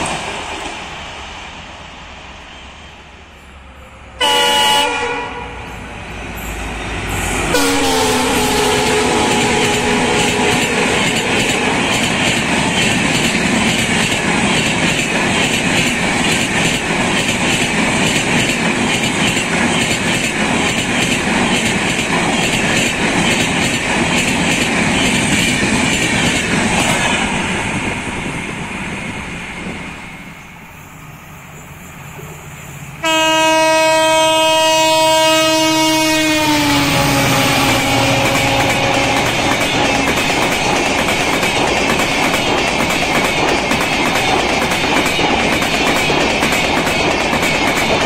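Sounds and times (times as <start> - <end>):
diesel locomotive horn: 3.8 - 5.9, 7.1 - 12.1, 33.0 - 40.2
train coaches clattering over rail joints: 7.9 - 27.2, 37.3 - 48.0.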